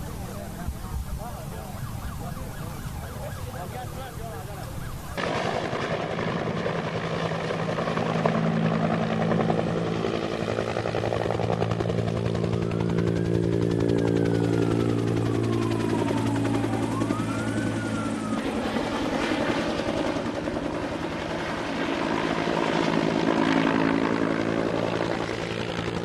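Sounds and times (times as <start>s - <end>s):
siren-like tone: 0.0s - 5.2s, 12.2s - 19.9s
helicopter engine hum: 0.0s - 26.0s
helicopter rotor chopping: 0.0s - 26.0s.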